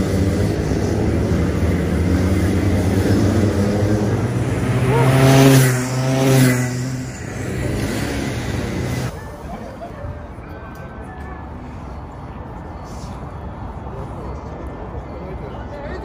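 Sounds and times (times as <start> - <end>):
karts passing close: 0.0 - 9.4
kart engines droning: 0.0 - 11.6.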